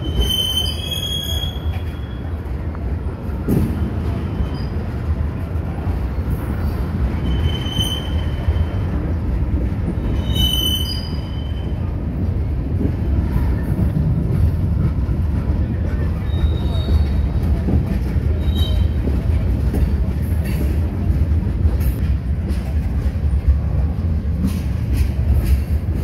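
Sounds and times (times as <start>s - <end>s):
high-pitched wheel squeals: 0.0s - 2.4s, 7.2s - 8.8s, 10.1s - 11.8s, 16.2s - 17.3s
freight train wheels rumbling: 0.0s - 26.0s.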